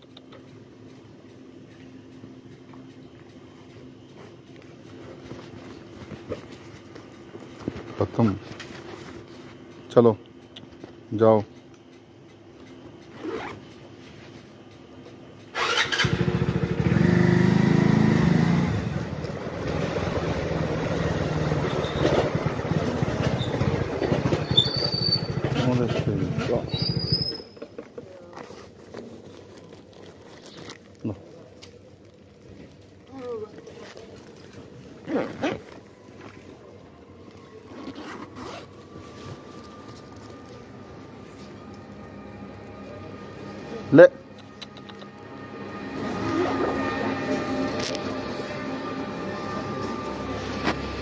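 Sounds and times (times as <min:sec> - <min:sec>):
bag rasping: 0:13.2 - 0:13.6, 0:35.0 - 0:36.0, 0:37.7 - 0:39.0
motorcycle engine: 0:15.2 - 0:27.8, 0:37.7 - 0:51.0.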